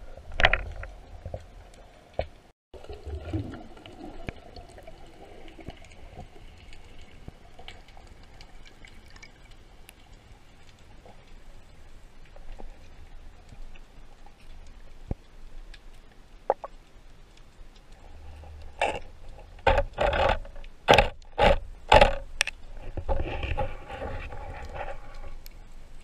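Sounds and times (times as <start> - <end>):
faint underwater clicks: 0.1 - 26.0
gear scraping against rock underwater: 17.9 - 25.6.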